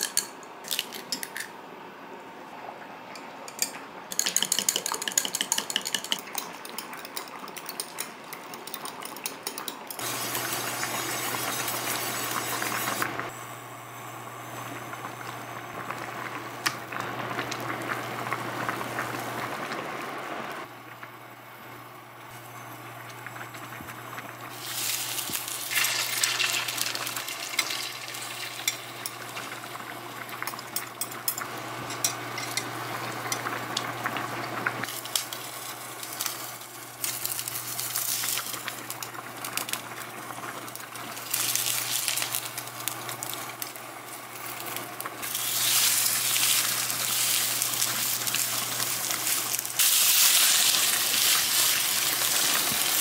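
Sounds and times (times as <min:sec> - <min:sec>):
whisk clicking against glass: 0:04.1 - 0:08.0
batter sizzling in pan: 0:10.0 - 0:19.9, 0:22.3 - 0:53.0.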